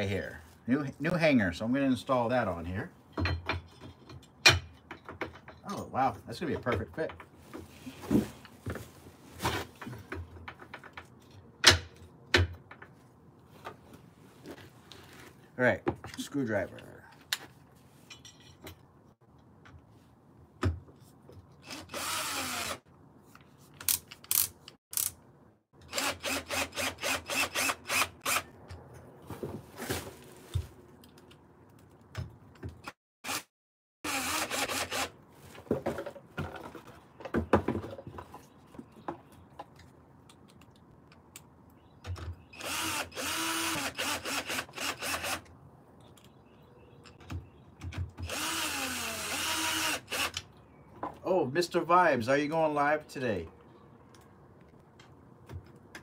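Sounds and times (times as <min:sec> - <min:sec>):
cordless drill driving screws: 0:21.6 - 0:22.8, 0:25.9 - 0:28.5, 0:34.1 - 0:35.1, 0:42.6 - 0:45.5, 0:48.2 - 0:50.5.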